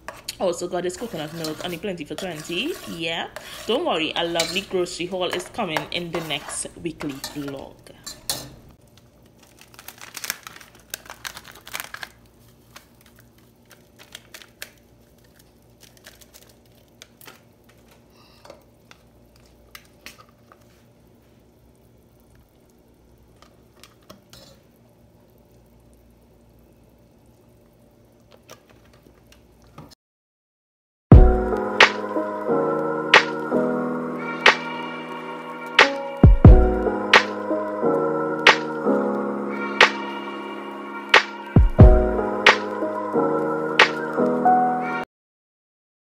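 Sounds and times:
plastic packet crinkling: 8.8 - 18.1.

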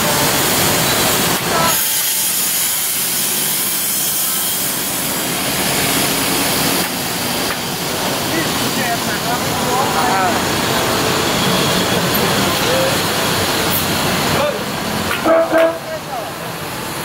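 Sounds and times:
compressed air hissing: 1.7 - 8.8.

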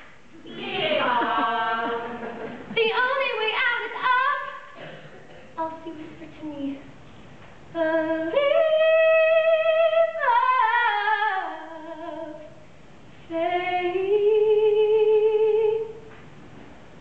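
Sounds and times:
woman singing unaccompanied: 0.8 - 4.7, 7.7 - 12.6, 13.3 - 16.0.

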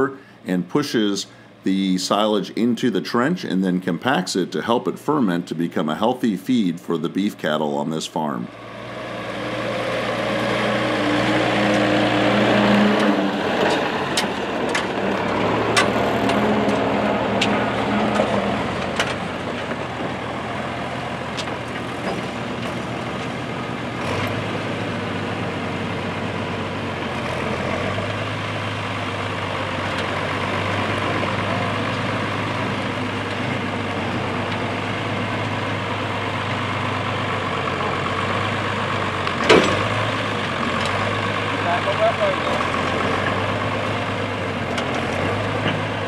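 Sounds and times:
tractor engine running: 0.0 - 46.0
sharp clanks and clicks: 13.0 - 16.8, 17.4 - 19.8, 39.2 - 41.0.

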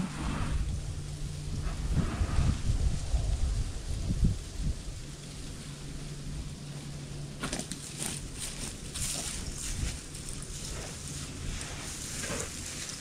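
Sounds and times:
low steady rumble: 0.0 - 13.0
footsteps on dry leaves and gravel: 7.4 - 13.0.

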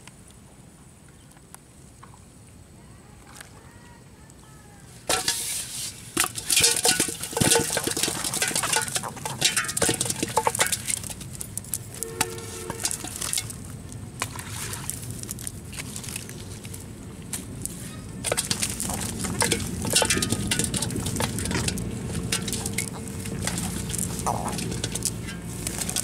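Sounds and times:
fish clattering into metal pot: 5.1 - 11.4, 12.1 - 14.7, 18.2 - 26.0
net rustling and crackling: 5.1 - 26.0.

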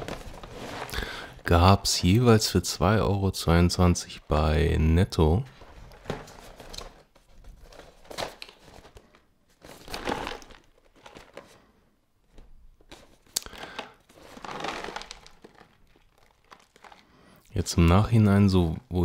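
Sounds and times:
cereal packaging crinkling: 0.0 - 1.4, 6.3 - 11.7, 12.8 - 17.4.

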